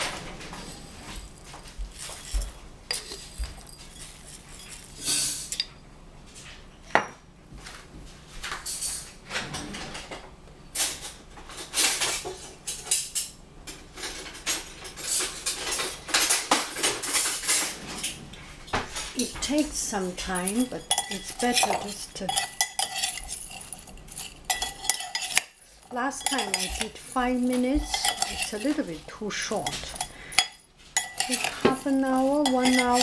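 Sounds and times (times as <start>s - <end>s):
salt shaker rattling: 1.2s - 5.4s, 20.2s - 33.0s.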